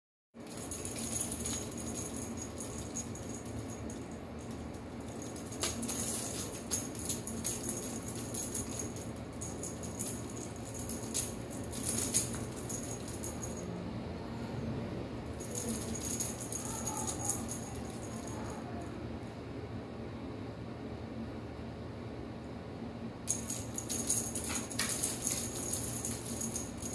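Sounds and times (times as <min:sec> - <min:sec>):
cat toy jingling: 0:00.4 - 0:13.7, 0:15.3 - 0:18.8, 0:23.3 - 0:26.9.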